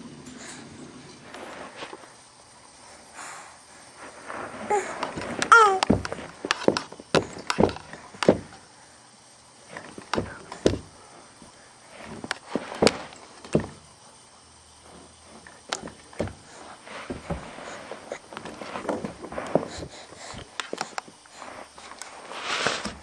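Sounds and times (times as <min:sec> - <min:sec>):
baby vocal sound: 0:04.6 - 0:06.0
knocks and thumps on camera: 0:05.0 - 0:08.6, 0:09.8 - 0:10.9, 0:12.1 - 0:13.8, 0:15.7 - 0:17.8.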